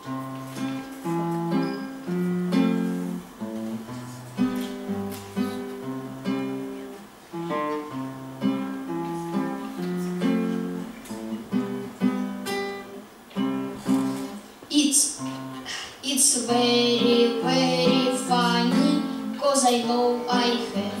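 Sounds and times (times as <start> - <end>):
guitar strum: 0.0 - 14.4
acoustic guitar picking: 0.0 - 21.0.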